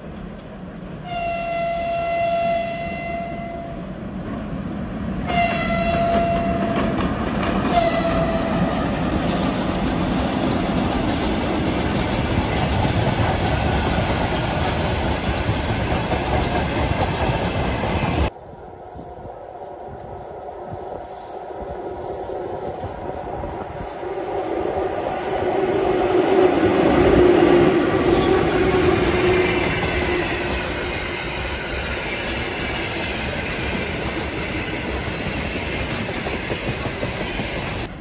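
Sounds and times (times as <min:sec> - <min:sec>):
locomotive horn blasts: 0:01.0 - 0:03.8, 0:05.3 - 0:06.9, 0:07.7 - 0:08.8
train wheels rumbling on rails: 0:03.5 - 0:38.0.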